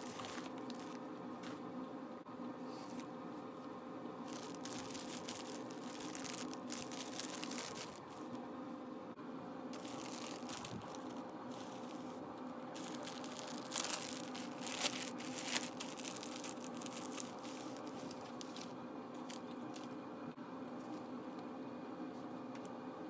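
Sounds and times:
plastic bag crinkling: 0.0s - 1.0s, 4.3s - 8.2s, 9.8s - 12.0s, 12.8s - 19.9s
steady low hum: 0.0s - 23.0s.

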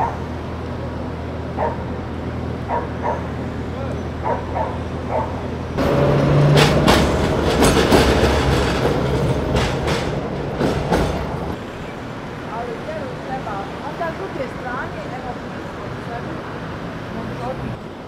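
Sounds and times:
tram whine: 0.0s - 18.0s
wheels clacking over rail joints: 2.6s - 11.7s.

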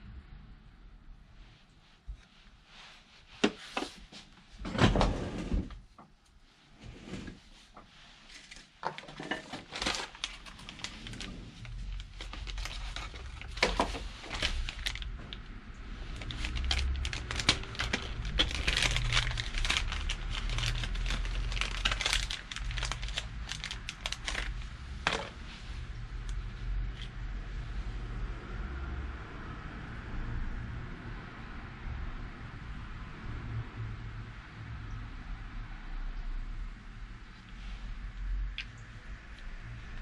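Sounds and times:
foil package crinkling: 8.4s - 15.4s, 16.0s - 25.4s.

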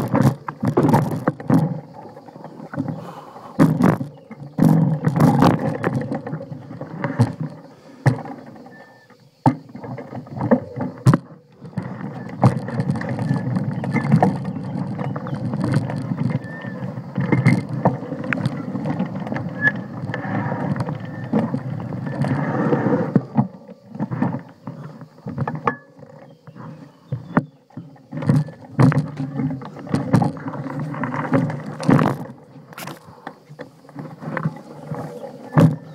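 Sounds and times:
bike rattling and knocking: 0.0s - 8.8s, 9.4s - 22.4s, 27.1s - 35.9s
bike tyres crunching over dirt: 0.0s - 35.9s.

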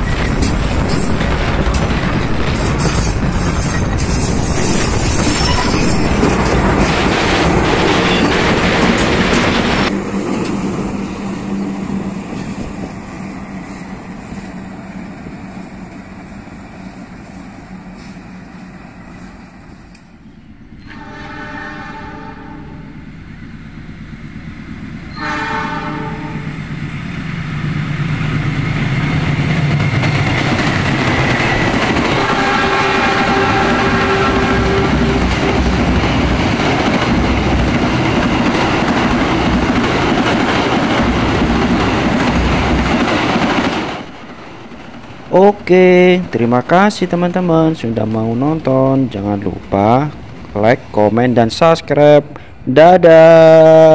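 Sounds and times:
diesel train running past: 0.0s - 53.9s
freight train running past: 0.0s - 53.9s
distant locomotive horn: 20.2s - 23.1s, 25.1s - 26.6s, 31.5s - 36.3s.

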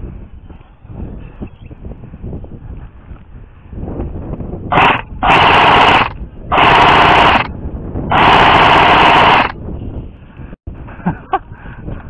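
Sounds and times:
airsoft rifle automatic fire: 4.7s - 7.5s, 8.1s - 9.6s.

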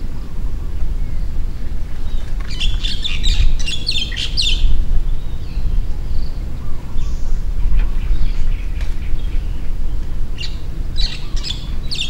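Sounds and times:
bird chirping: 0.0s - 12.0s
low rumble: 0.0s - 12.0s.

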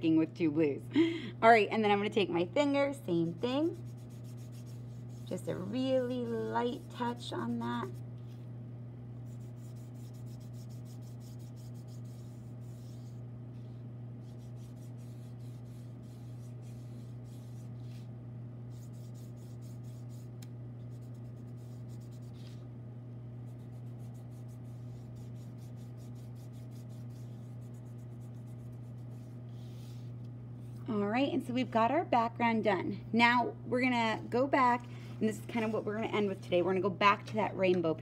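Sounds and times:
steady low hum: 0.0s - 38.0s
fingertips rubbing pastel on paper: 3.6s - 8.0s, 9.2s - 18.1s, 18.7s - 20.3s, 20.9s - 22.6s, 23.5s - 30.8s.

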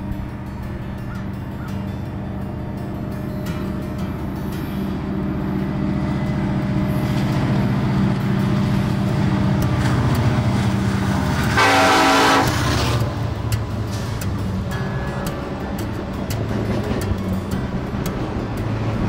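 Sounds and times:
locomotive engine drone: 0.0s - 19.0s
locomotive horn blast: 4.8s - 15.8s.

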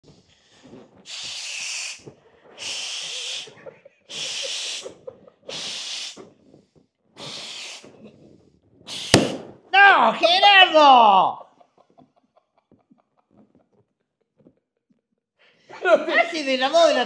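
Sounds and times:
person blowing into balloon: 0.0s - 6.6s, 7.2s - 9.5s.

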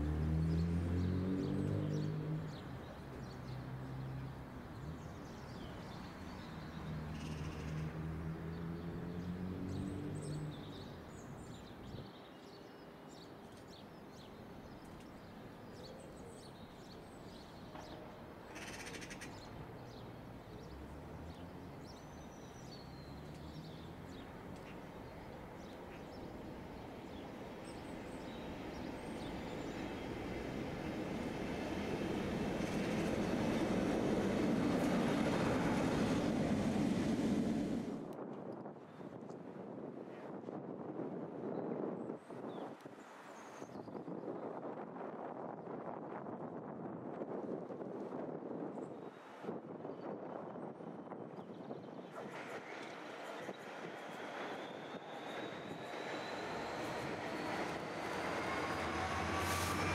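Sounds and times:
diesel locomotive engine: 23.4s - 38.1s, 52.1s - 59.9s.

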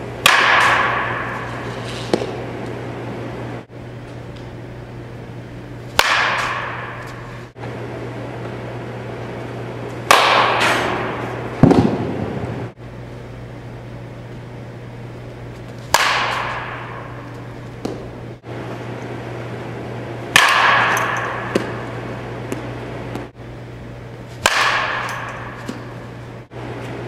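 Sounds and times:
steady low hum: 0.0s - 27.0s
metal bat cracking balls: 0.1s - 2.8s, 5.9s - 7.5s, 9.9s - 12.6s, 15.6s - 18.3s, 20.3s - 23.3s, 24.1s - 26.4s.

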